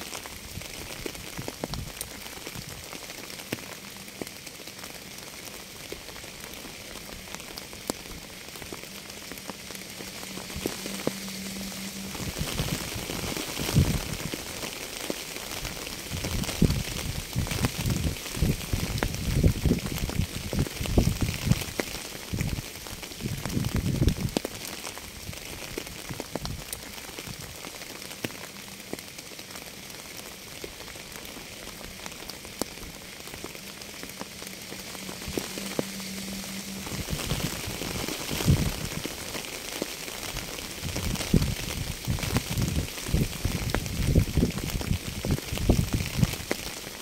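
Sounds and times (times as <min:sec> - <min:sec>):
raindrops ticking: 0:00.0 - 0:47.0
steady rain hiss: 0:00.0 - 0:47.0
low rumbling: 0:06.8 - 0:14.8, 0:31.5 - 0:39.4.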